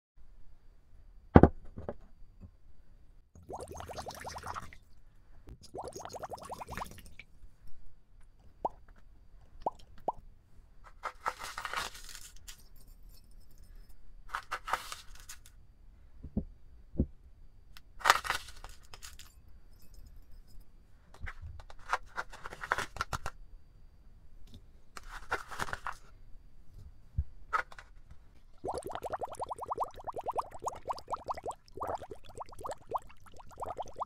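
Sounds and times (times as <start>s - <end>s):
small watery plops: 3.4s - 4.8s, 5.6s - 7.2s, 28.6s - 34.0s.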